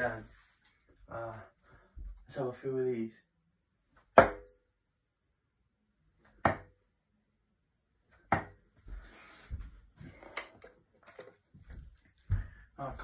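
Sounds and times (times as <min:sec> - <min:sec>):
darts thudding into dartboard: 0:04.2 - 0:04.6, 0:06.4 - 0:06.8, 0:08.3 - 0:08.6.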